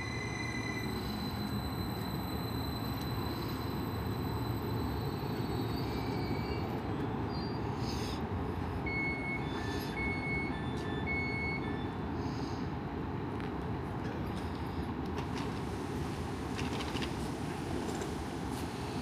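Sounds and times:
electronic beeps: 0:00.0 - 0:06.6
train rumbling to a stop: 0:00.0 - 0:19.0.

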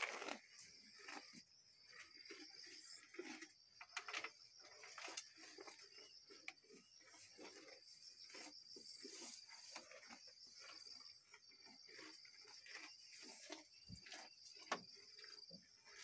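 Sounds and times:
cattle crunching forage: 0:00.0 - 0:16.0.

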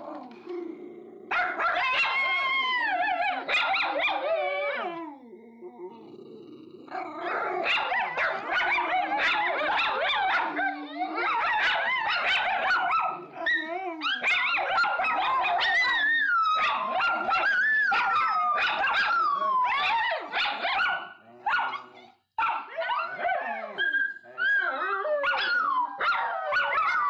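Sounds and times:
dogs barking and yipping: 0:01.3 - 0:04.8, 0:07.3 - 0:27.0.

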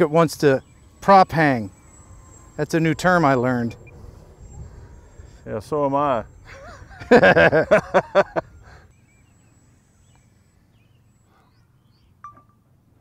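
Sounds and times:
faint outdoor background: 0:00.0 - 0:13.0
person laughing: 0:06.4 - 0:08.9.

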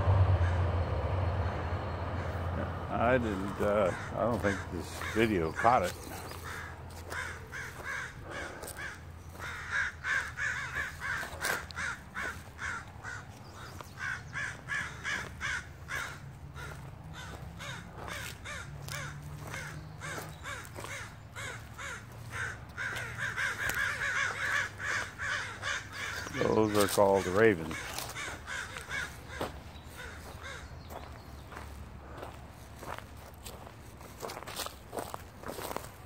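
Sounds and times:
steady low hum: 0:00.0 - 0:26.8
ravens cawing: 0:00.0 - 0:36.0.

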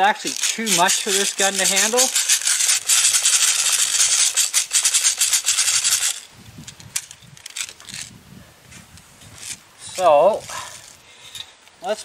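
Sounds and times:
small hard objects rattling: 0:00.0 - 0:08.1.

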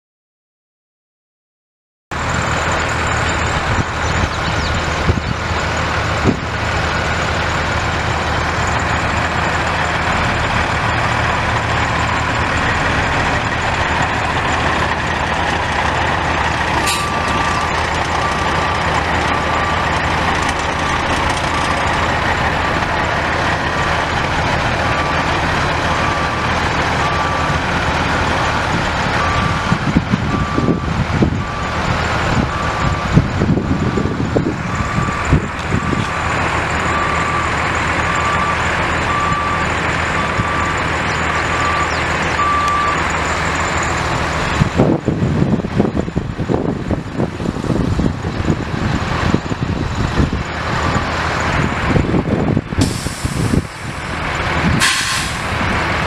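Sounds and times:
diesel truck engine running: 0:02.1 - 0:56.0
reversing alarm beeping: 0:11.6 - 0:22.2, 0:24.8 - 0:27.7, 0:28.4 - 0:44.0.

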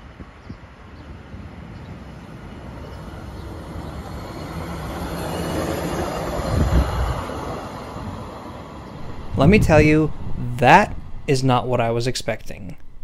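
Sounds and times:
truck rolling on rails: 0:03.6 - 0:13.0.

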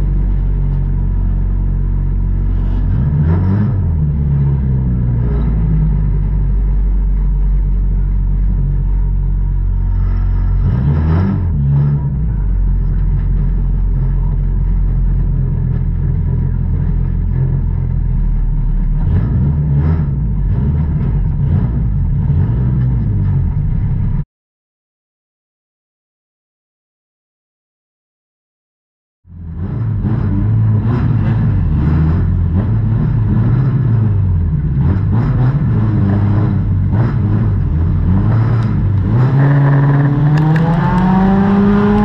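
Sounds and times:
race car engine idling and revving: 0:00.0 - 0:24.2, 0:29.3 - 0:42.0.

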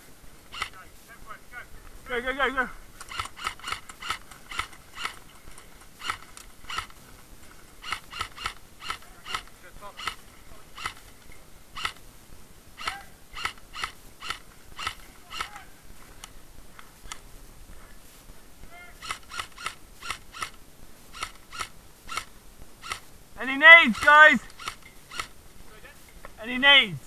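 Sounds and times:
airsoft gun shots: 0:00.5 - 0:00.8, 0:06.0 - 0:07.0, 0:07.8 - 0:11.1, 0:11.8 - 0:12.0, 0:12.8 - 0:15.7, 0:19.0 - 0:23.1.

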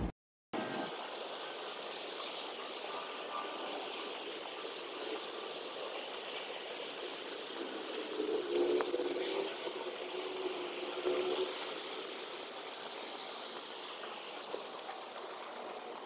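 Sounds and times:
faint ticks: 0:12.7 - 0:16.0.

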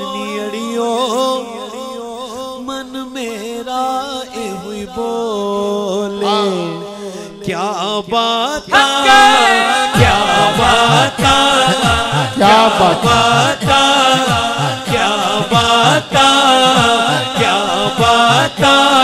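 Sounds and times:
man singing through a microphone: 0:00.0 - 0:19.0
low rhythmic pulse: 0:10.0 - 0:16.1.

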